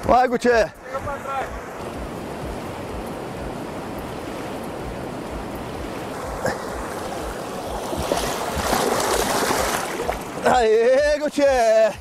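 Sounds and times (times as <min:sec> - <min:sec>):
river rapids rushing: 0:00.0 - 0:12.0
water splashing: 0:01.5 - 0:11.5.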